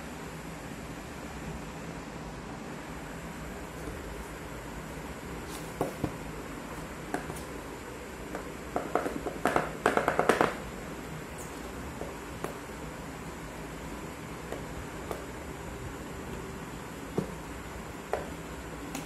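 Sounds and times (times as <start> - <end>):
steady hiss: 0.0 - 19.0
taps and knocks on cardboard box: 5.6 - 6.2, 7.1 - 7.5, 8.3 - 10.6, 17.1 - 17.4, 18.1 - 19.0.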